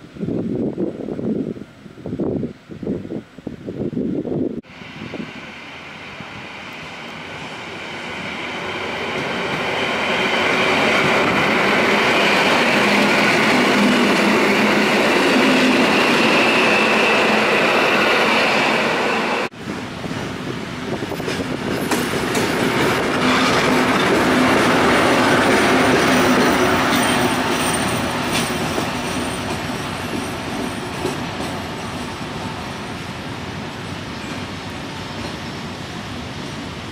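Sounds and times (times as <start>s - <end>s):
train wheels rumbling on rails: 4.6s - 36.9s
high wheel squeal: 4.8s - 19.5s, 24.9s - 31.1s.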